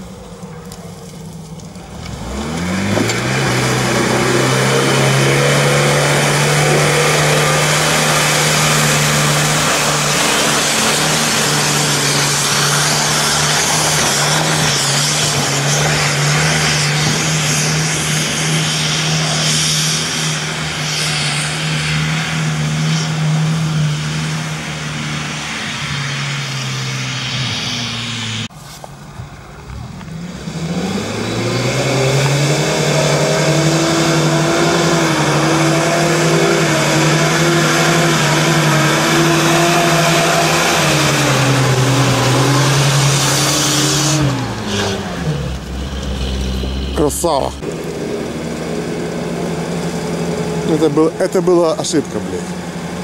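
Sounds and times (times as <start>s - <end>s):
wheels spinning in mud: 0.0s - 26.4s
off-road engine revving: 0.0s - 28.6s, 29.2s - 53.0s.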